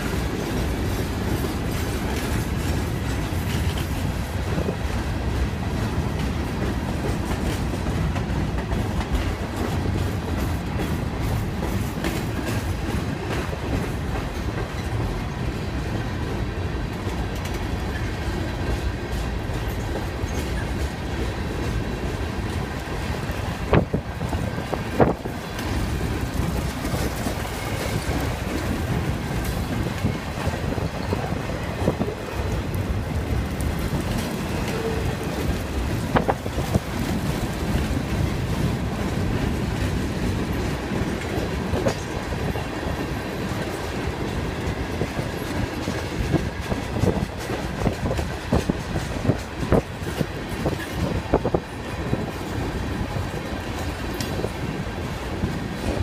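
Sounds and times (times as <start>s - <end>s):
freight train rolling past: 0.0s - 56.0s
steel wheels clattering on rails: 0.0s - 56.0s.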